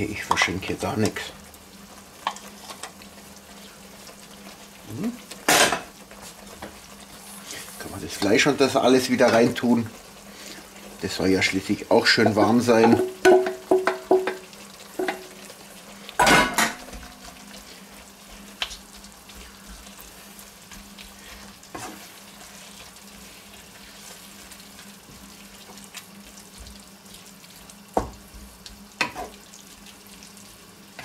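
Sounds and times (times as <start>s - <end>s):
food sizzling softly: 0.0s - 31.0s
spoon knocking on metal: 12.8s - 14.4s.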